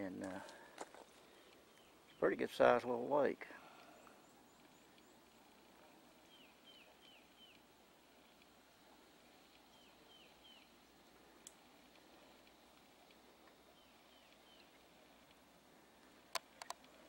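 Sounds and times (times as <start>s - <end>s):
songbird singing: 0.0s - 17.0s
small click: 16.3s - 17.0s.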